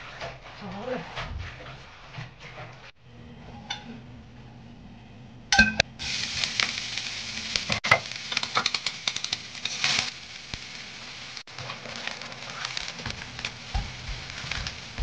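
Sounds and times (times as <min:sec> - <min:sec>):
oil sizzling in a wok: 0:05.5 - 0:15.0.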